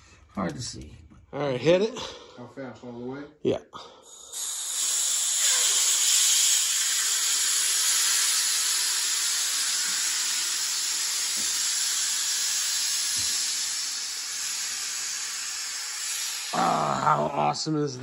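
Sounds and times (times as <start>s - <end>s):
compressed air hissing out: 4.0s - 17.5s.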